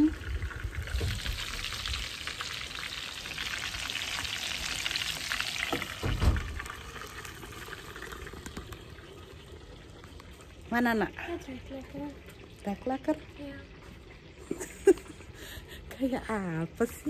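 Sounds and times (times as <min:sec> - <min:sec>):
chicken sizzling in hot oil: 0:00.0 - 0:11.0
low thump: 0:05.8 - 0:06.7.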